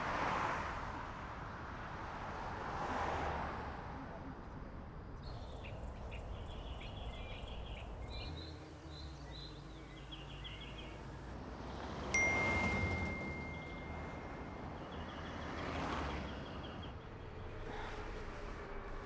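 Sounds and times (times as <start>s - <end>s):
small birds chirping: 5.2s - 11.4s
high bell-like ding: 12.2s - 14.8s.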